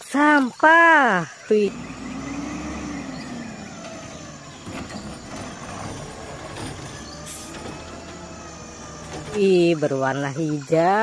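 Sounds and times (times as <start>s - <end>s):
diesel engine humming: 1.4s - 11.0s
hydraulic arm lifting cart: 1.6s - 10.2s.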